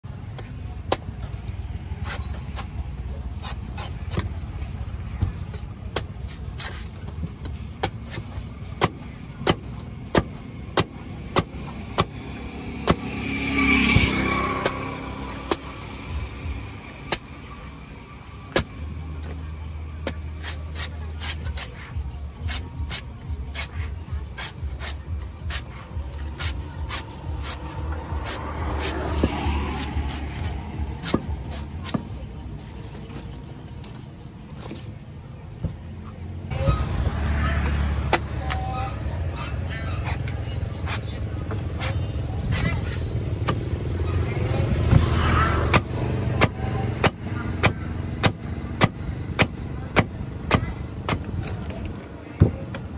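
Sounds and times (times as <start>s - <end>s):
traffic rumble: 0.0s - 52.9s
cleaver chopping coconut husk: 5.9s - 6.8s, 7.4s - 15.8s, 17.1s - 17.4s, 18.5s - 18.8s, 22.4s - 32.2s, 37.6s - 38.6s, 40.8s - 43.7s, 44.8s - 51.5s.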